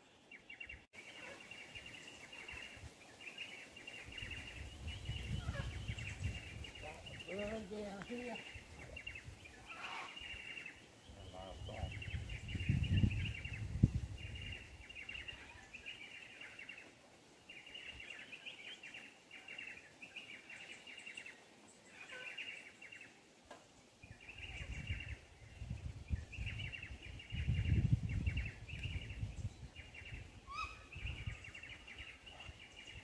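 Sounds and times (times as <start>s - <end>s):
birds chirping: 0.0s - 33.0s.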